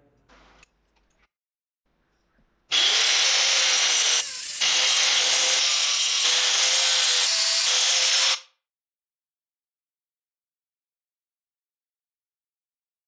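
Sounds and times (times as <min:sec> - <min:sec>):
angle grinder cutting wood: 0:02.7 - 0:08.5.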